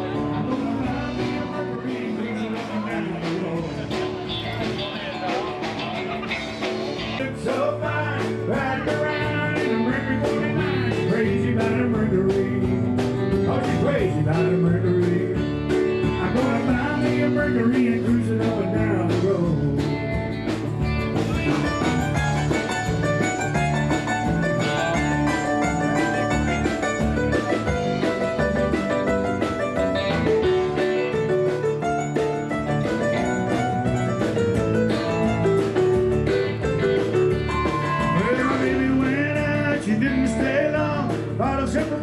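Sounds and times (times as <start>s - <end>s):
country music with guitar and drums: 0.0s - 42.0s.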